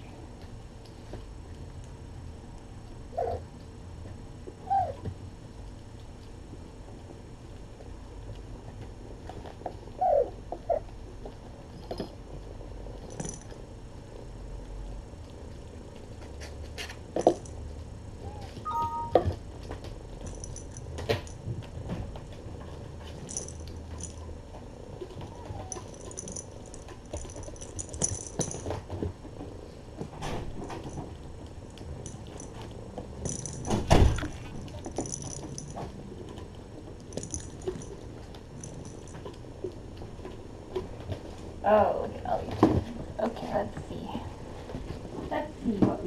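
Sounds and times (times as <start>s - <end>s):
light jingling: 23.1s - 24.2s, 33.2s - 35.9s, 37.0s - 39.2s.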